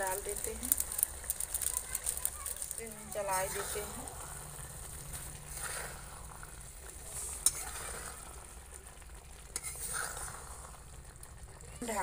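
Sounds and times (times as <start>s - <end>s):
pan sizzling: 0.0s - 12.0s
spatula stirring noodles: 0.0s - 12.0s.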